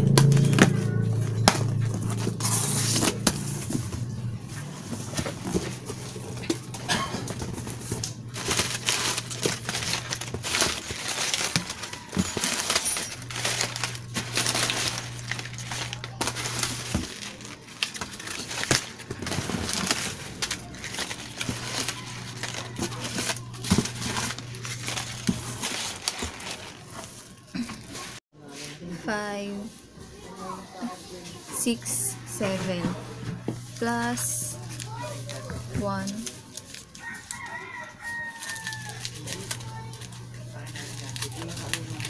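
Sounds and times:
low steady hum: 0.0 - 26.8
paper rustling and crackling: 0.0 - 28.7, 33.4 - 42.0.

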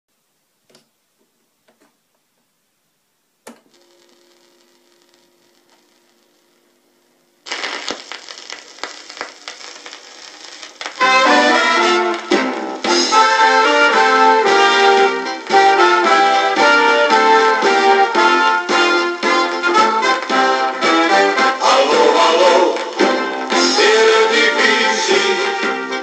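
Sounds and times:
record player hum: 0.1 - 25.3
vinyl surface crackle: 3.6 - 16.6, 18.1 - 24.1
brass band music from speaker: 11.0 - 26.0.

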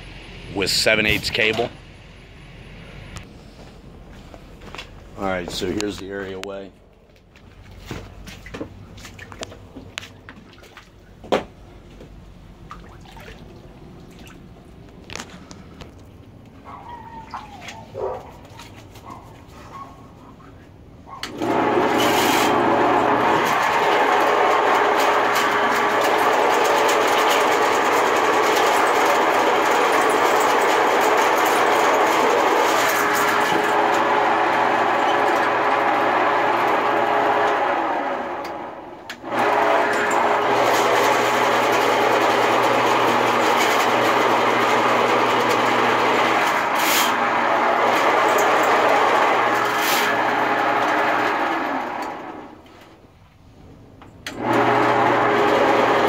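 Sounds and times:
sewer machine motor running: 21.3 - 52.6, 54.3 - 56.0.

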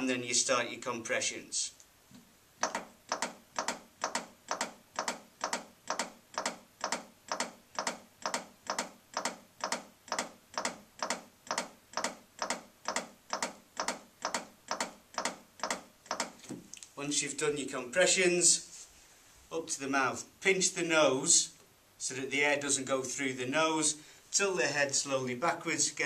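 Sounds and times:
manikin chest compression clicks: 2.6 - 16.9.

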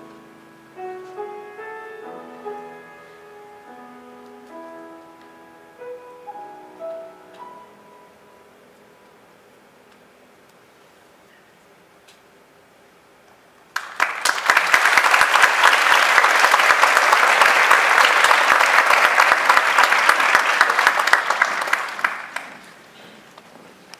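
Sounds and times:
audience applauding: 13.7 - 22.9.

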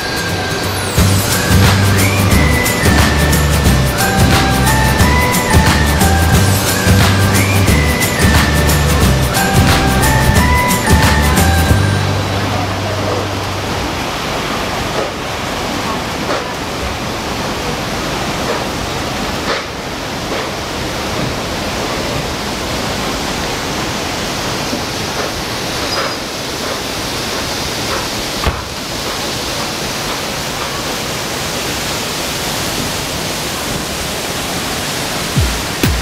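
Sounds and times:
creek water rushing over rocks: 0.0 - 36.0
brief knock: 28.4 - 28.7.

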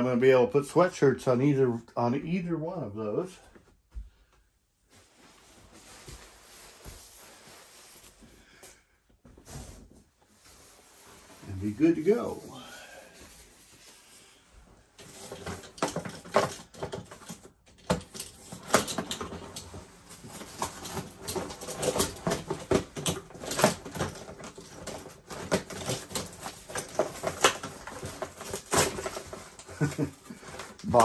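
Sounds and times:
plastic packaging crackling: 20.1 - 31.0.

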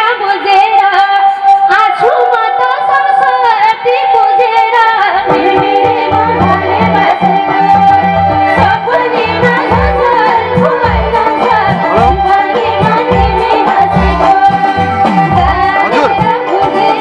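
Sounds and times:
sustained held notes: 1.2 - 16.9
sliding melody line: 1.9 - 17.0
hand drum beat: 5.3 - 17.0.

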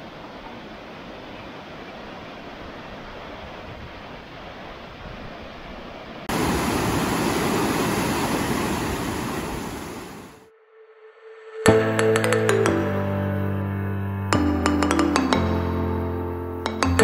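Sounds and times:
rushing river rapids: 0.0 - 10.4.

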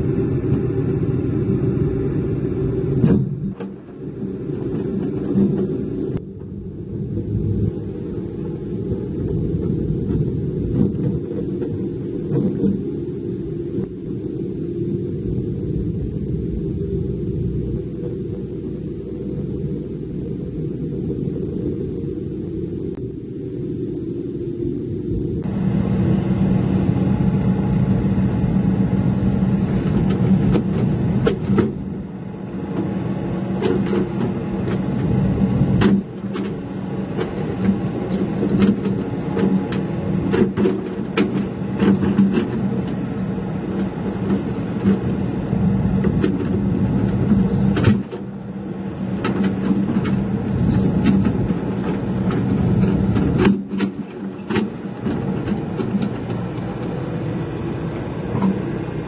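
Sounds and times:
heavy equipment diesel engines: 0.0 - 59.0
steel tracks clanking: 28.7 - 59.0.

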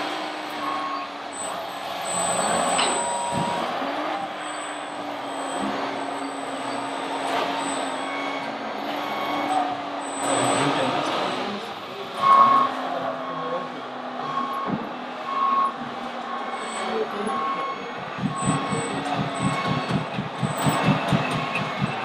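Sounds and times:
engine-like drone: 0.0 - 22.0
short high beeps: 0.6 - 11.5, 15.3 - 22.0.

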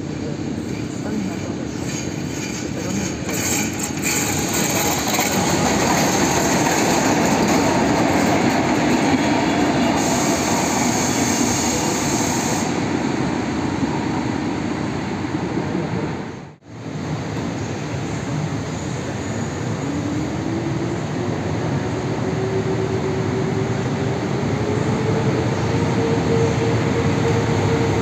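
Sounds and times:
train wheels rumbling on rails: 0.0 - 28.0.

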